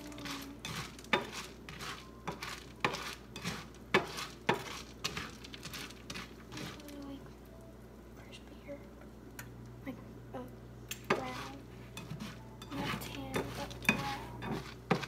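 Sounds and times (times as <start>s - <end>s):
cereal rattling in frying pan: 0.0s - 7.2s.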